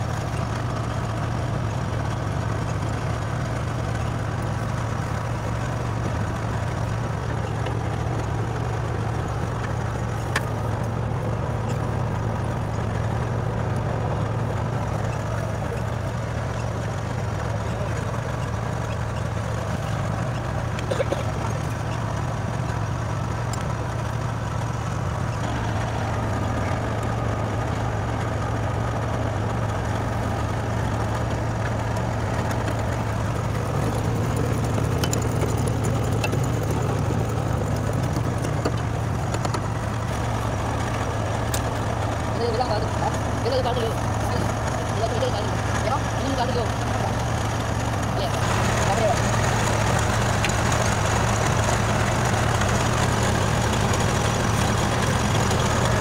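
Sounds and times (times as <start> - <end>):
engine idling: 0.0 - 56.0.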